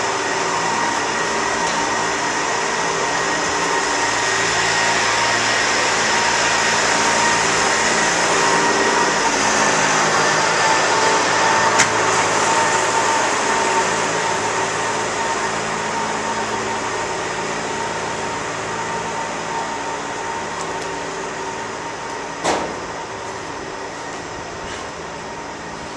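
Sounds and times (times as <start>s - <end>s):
constant whine: 0.0s - 25.9s
steady mechanical hum: 0.0s - 25.9s.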